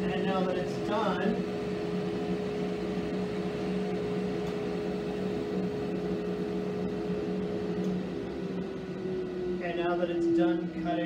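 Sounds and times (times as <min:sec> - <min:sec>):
dust collector running: 0:00.0 - 0:11.0.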